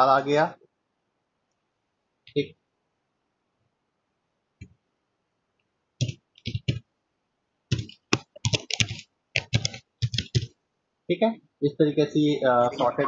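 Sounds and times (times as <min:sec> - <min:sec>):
keyboard typing: 0:06.0 - 0:06.9, 0:07.7 - 0:10.6.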